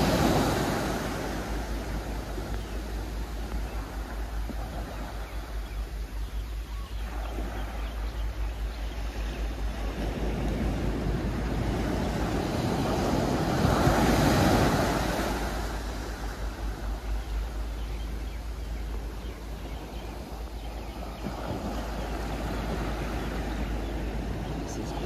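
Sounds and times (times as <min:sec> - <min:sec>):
wave breaking and washing in: 0:00.0 - 0:25.0
wind rumbling on microphone: 0:00.0 - 0:25.0.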